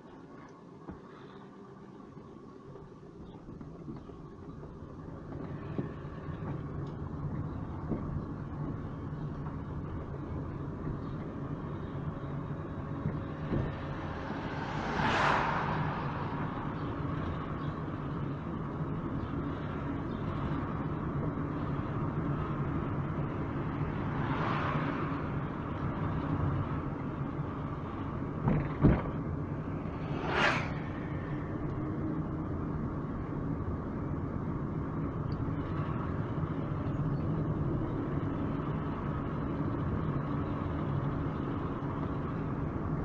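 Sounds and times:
vehicle engine hum and road noise: 0.0s - 43.0s
whooshing swells: 29.5s - 31.7s.

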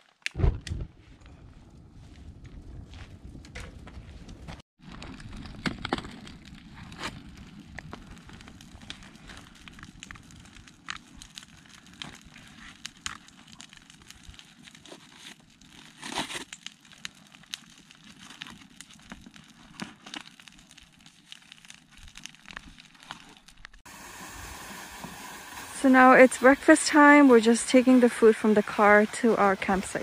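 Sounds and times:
campfire crackling: 0.0s - 30.0s
loud crunch: 2.4s - 23.8s
steady hiss: 23.9s - 30.0s.

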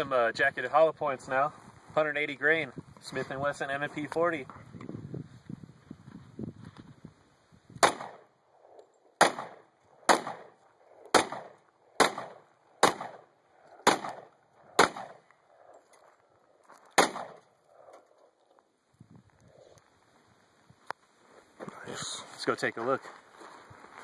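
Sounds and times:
pistol shots: 7.8s - 8.3s, 9.2s - 15.2s, 16.9s - 17.4s.

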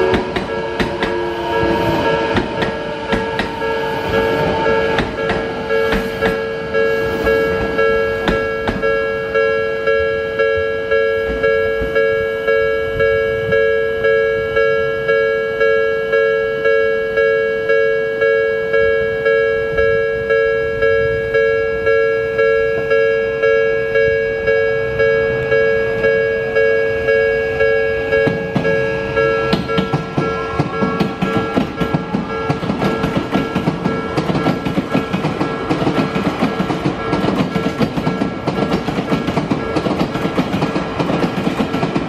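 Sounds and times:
train motor whine: 0.0s - 17.2s, 20.7s - 42.0s
level crossing warning bell: 0.0s - 42.0s.

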